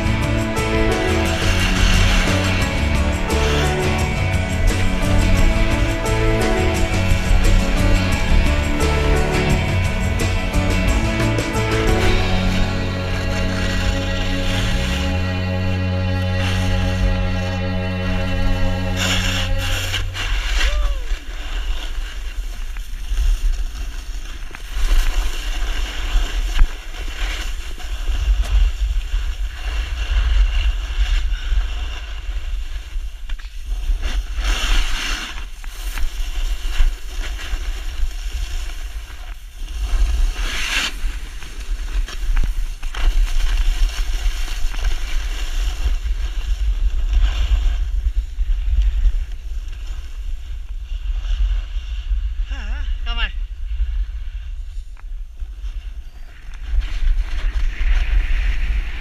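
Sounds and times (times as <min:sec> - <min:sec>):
skis scraping over packed snow: 0:00.0 - 0:59.0
wind buffeting microphone: 0:53.4 - 0:59.0.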